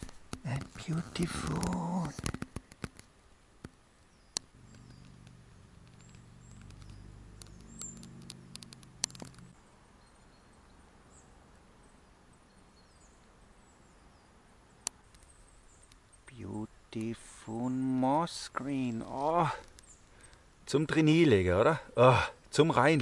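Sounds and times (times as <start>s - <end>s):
sharp clicks: 0.0s - 9.6s
faint high bird chirps: 4.1s - 16.6s.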